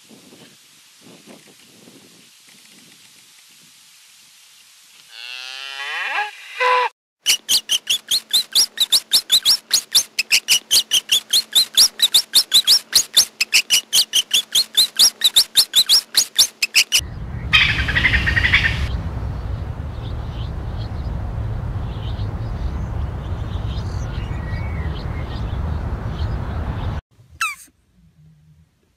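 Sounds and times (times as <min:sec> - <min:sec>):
cow mooing: 0:05.1 - 0:06.4
rat squeaking: 0:07.2 - 0:17.0, 0:27.4 - 0:27.7
low rumble: 0:17.0 - 0:27.0.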